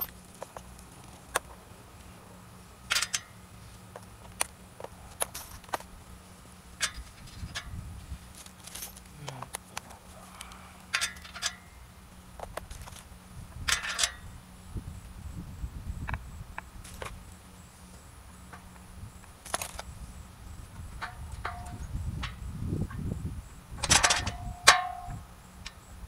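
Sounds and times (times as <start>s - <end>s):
wrench clinking on metal frame: 2.9s - 3.4s, 6.8s - 7.7s, 10.9s - 11.7s, 13.7s - 14.3s, 21.0s - 22.5s, 23.8s - 25.8s.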